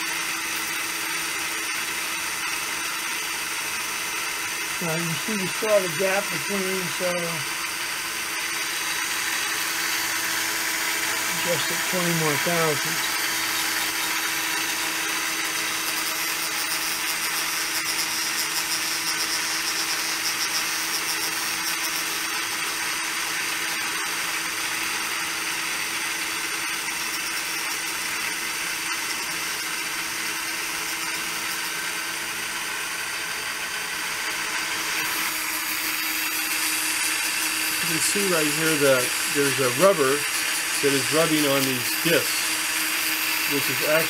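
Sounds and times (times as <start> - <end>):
lathe cutter whine: 0.0 - 44.0.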